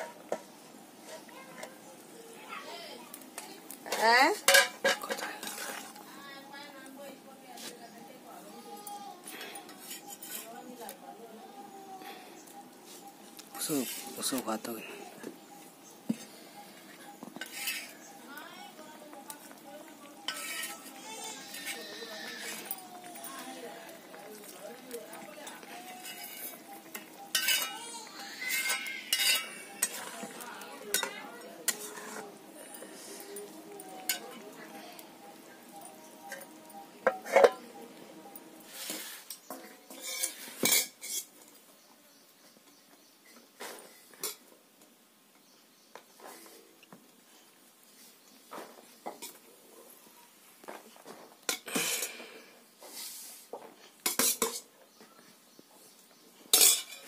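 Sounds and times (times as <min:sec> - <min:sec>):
spatula scraping metal pan: 0:04.5 - 0:06.0, 0:09.4 - 0:10.6, 0:17.4 - 0:18.0, 0:20.2 - 0:23.8, 0:25.4 - 0:32.4, 0:38.6 - 0:41.3, 0:56.5 - 0:57.0.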